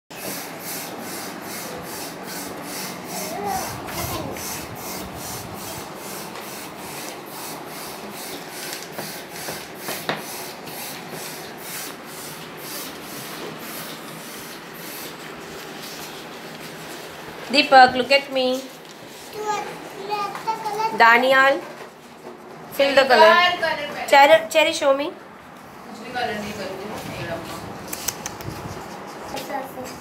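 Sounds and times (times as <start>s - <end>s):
crayons scribbling on paper: 0.2s - 17.0s
faint voice: 3.2s - 4.4s.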